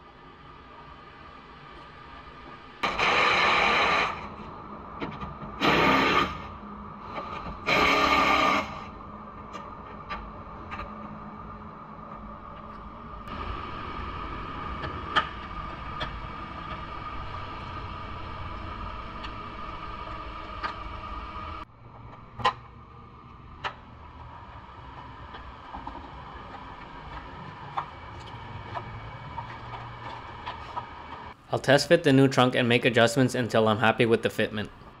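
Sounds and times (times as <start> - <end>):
workshop hum: 0.0 - 35.0.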